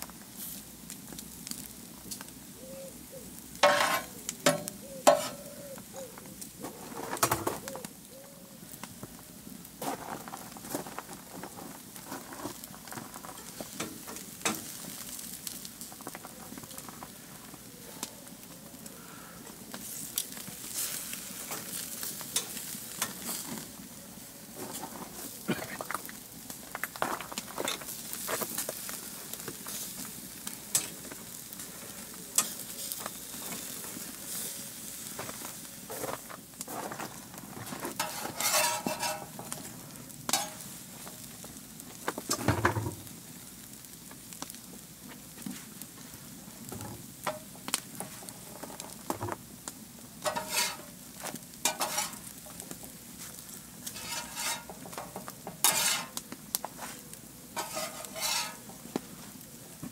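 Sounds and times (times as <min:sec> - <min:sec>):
wood fire crackling and popping: 0:00.0 - 0:02.6, 0:03.3 - 0:59.9
food sizzling: 0:00.0 - 0:59.9
metal spatula scraping steel: 0:03.6 - 0:05.5, 0:38.0 - 0:39.5, 0:40.3 - 0:40.6, 0:50.2 - 0:50.9, 0:51.6 - 0:52.2, 0:53.9 - 0:56.2, 0:57.6 - 0:58.7.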